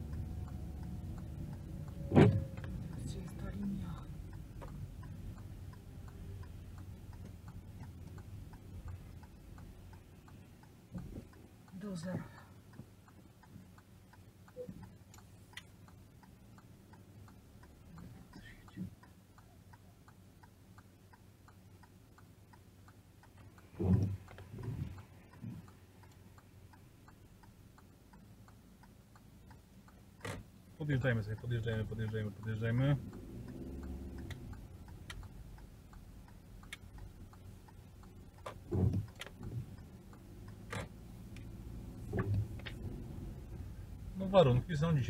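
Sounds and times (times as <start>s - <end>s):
car engine hum: 0.0s - 45.0s
turn signal ticking: 0.0s - 45.0s
windscreen wiper thuds: 1.9s - 4.8s, 10.9s - 11.4s, 23.7s - 25.7s, 38.3s - 39.8s, 40.6s - 43.4s.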